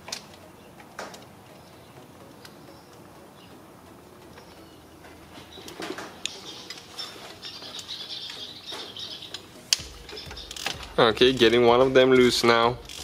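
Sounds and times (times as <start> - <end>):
hand ratchet clicking: 9.7 - 13.0.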